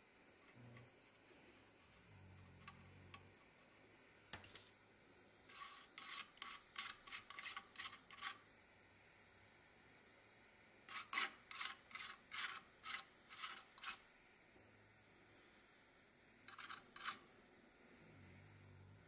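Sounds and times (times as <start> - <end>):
wire brush scrubbing metal: 5.5 - 8.4, 10.9 - 14.0, 16.5 - 17.2.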